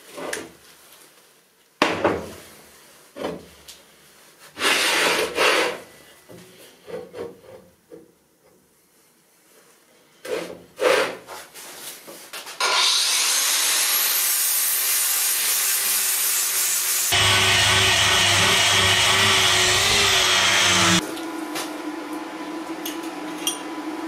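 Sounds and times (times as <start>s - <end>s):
steel scraping on steel: 17.1s - 21.0s.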